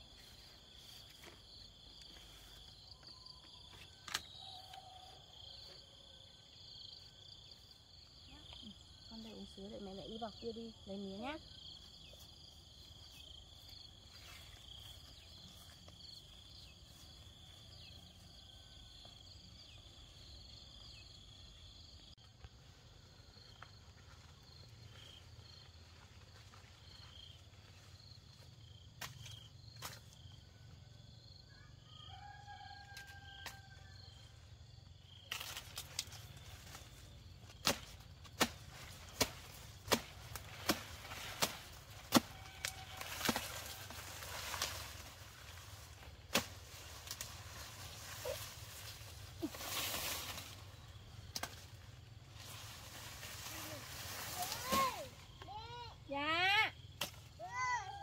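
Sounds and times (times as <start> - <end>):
insects chirping and buzzing: 0.0 - 58.0
sugar cane chopping strikes: 37.6 - 43.7, 46.3 - 47.2, 51.3 - 51.7.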